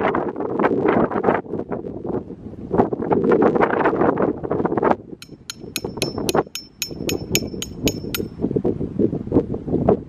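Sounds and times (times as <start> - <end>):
wind rumble on microphone: 0.0 - 10.0
hammer striking metal stake: 5.2 - 8.3.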